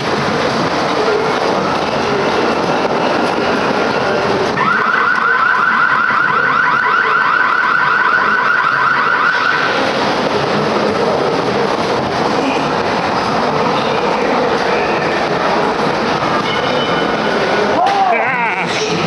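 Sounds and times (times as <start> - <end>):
ride car rumbling on track: 0.0 - 19.0
warbling alarm effect: 4.6 - 9.8.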